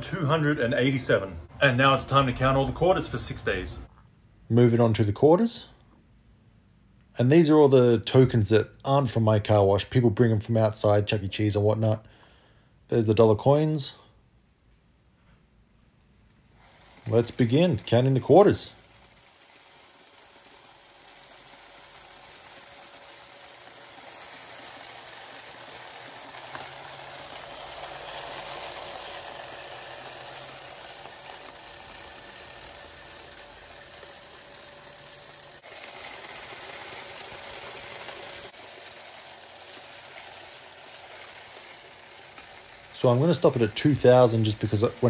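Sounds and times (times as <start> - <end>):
coin counter whirring: 16.6 - 45.0
coins rattling and clinking: 16.6 - 45.0.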